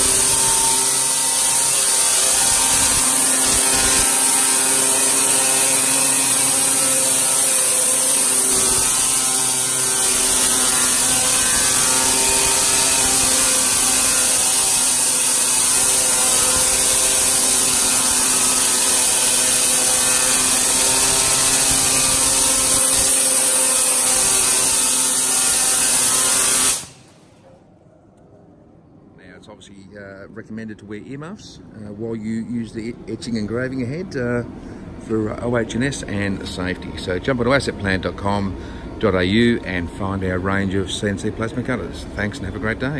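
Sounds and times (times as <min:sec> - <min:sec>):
engraving head buzzing: 0:00.0 - 0:27.4.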